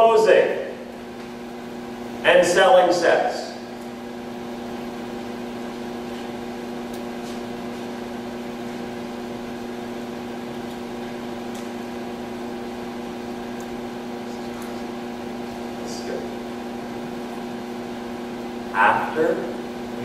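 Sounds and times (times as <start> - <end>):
steady hum: 0.0 - 20.0.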